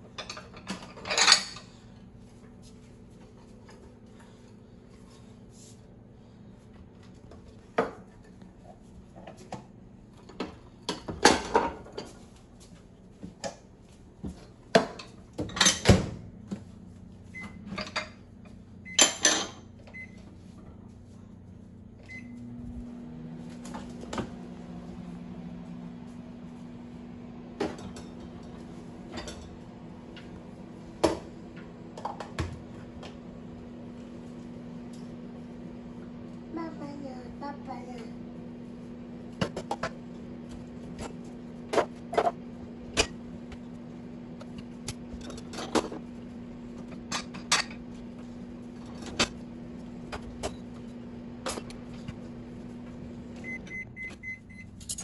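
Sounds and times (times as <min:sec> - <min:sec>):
dishes clattering in dishwasher rack: 0:00.1 - 0:01.7, 0:14.7 - 0:16.2, 0:17.7 - 0:18.2, 0:19.0 - 0:19.6.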